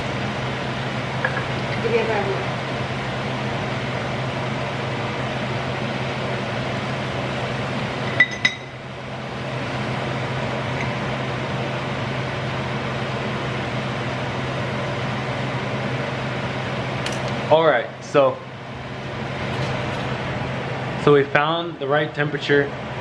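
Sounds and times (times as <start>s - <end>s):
food frying in hot oil: 0.0s - 17.5s.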